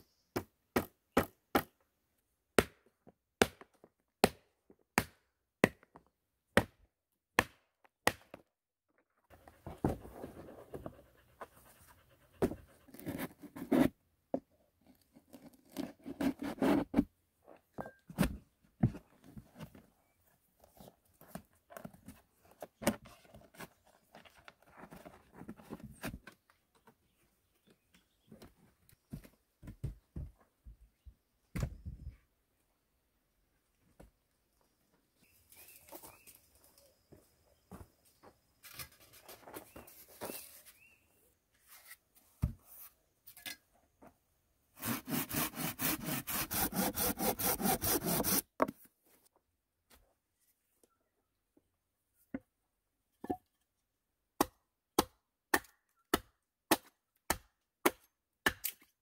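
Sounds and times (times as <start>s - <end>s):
knife shaving wooden strip: 44.8s - 48.4s.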